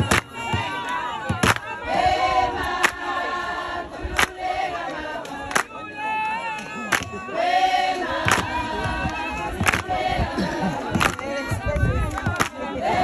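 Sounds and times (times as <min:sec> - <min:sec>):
group singing in chorus: 0:00.0 - 0:13.0.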